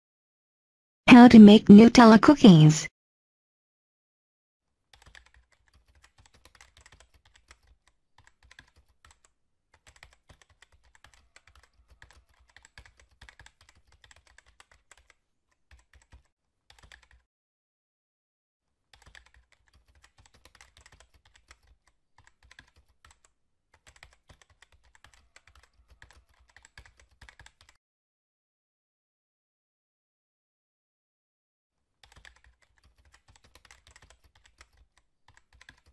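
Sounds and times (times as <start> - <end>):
rapid keyboard typing: 4.9 - 17.2, 18.9 - 27.8, 32.0 - 35.9.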